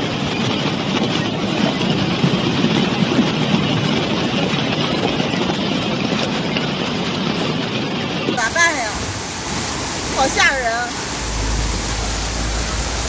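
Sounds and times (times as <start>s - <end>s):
floodwater torrent rushing: 7.7s - 13.0s.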